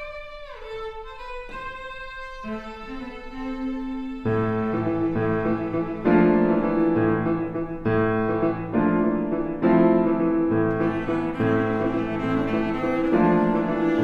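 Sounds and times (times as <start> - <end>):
grand piano playing chords: 4.2 - 14.0.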